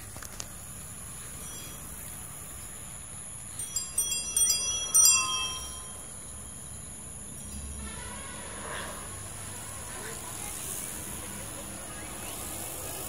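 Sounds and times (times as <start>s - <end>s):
bicycle bell ringing: 1.1s - 7.8s.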